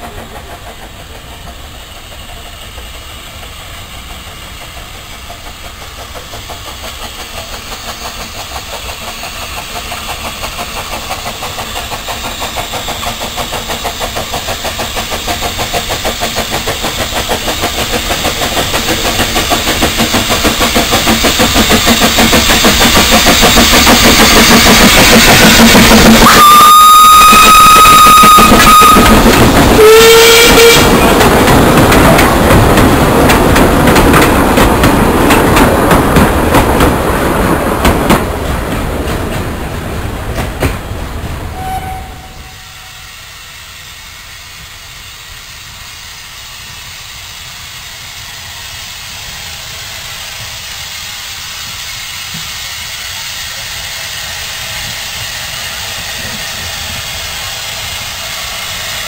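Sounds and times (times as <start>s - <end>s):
distant approaching train: 0.0s - 59.0s
steam locomotive whistle: 24.2s - 31.2s, 41.5s - 45.1s.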